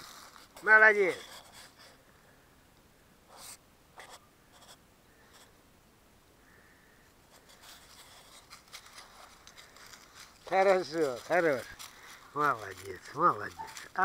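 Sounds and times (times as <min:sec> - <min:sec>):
faint scratching rustles: 0:00.0 - 0:02.0, 0:07.3 - 0:14.0.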